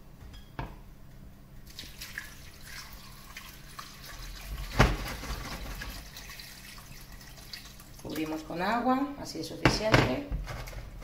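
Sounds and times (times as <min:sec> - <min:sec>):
water running into a pot: 0:01.6 - 0:08.6.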